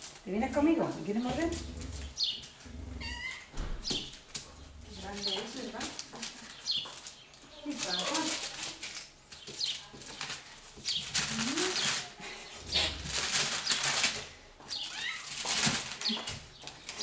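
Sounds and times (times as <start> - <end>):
newspaper rustling and crinkling: 0.0 - 17.0.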